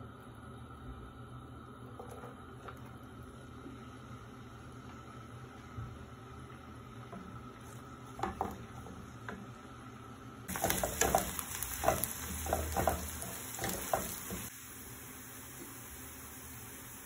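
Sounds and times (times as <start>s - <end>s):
onion sizzling in oil: 6.3s - 17.0s
wooden spatula scraping a pan: 10.5s - 14.5s.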